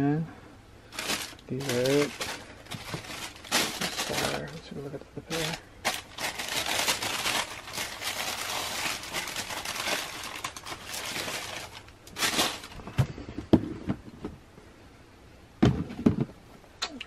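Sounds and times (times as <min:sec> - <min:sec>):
tissue paper rustling and crinkling: 0:00.9 - 0:12.9
shoe knocking in box: 0:15.6 - 0:16.3.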